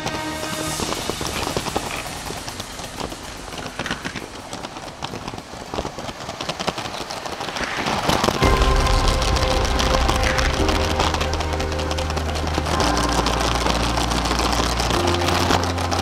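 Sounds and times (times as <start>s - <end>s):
light hiss: 0.0s - 16.0s
toy train wheels clicking: 0.0s - 16.0s.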